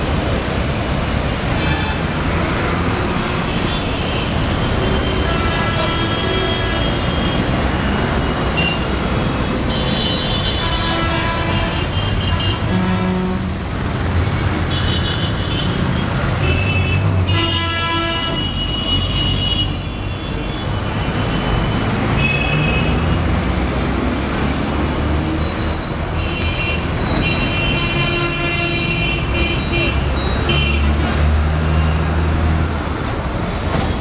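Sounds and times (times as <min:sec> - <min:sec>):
bus engines passing: 0:00.0 - 0:34.0
steady traffic rumble: 0:00.0 - 0:34.0
vehicle horns honking: 0:03.4 - 0:07.5, 0:09.6 - 0:13.5, 0:14.7 - 0:20.0, 0:26.2 - 0:31.0.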